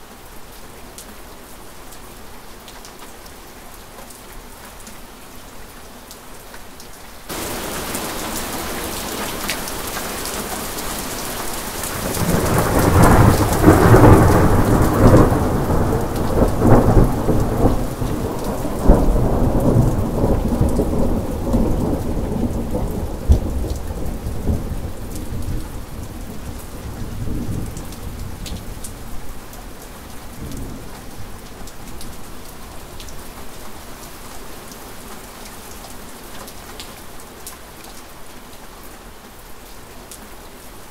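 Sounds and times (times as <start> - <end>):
steady rain: 0.0 - 40.9
thunder rolling: 7.3 - 9.4, 11.9 - 25.6.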